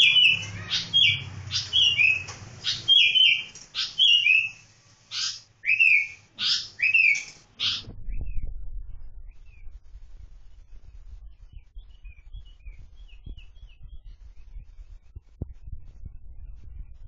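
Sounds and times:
bird chirping: 0:00.0 - 0:09.8, 0:10.4 - 0:16.9
low rumbling noise: 0:07.8 - 0:17.0.

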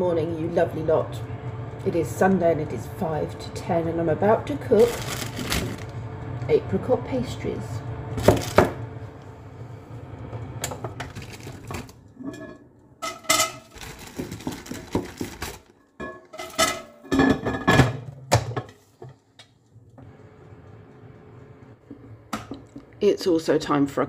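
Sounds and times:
metal rack and glass clinking: 0:12.2 - 0:14.7, 0:16.0 - 0:17.8.

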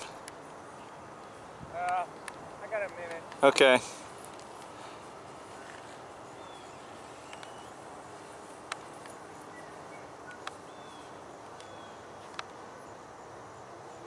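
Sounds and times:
distant model plane engine drone: 0:00.0 - 0:14.0
sharp clicks: 0:01.8 - 0:03.6, 0:07.3 - 0:07.6
high bird chirps: 0:05.6 - 0:08.3, 0:09.2 - 0:12.0.

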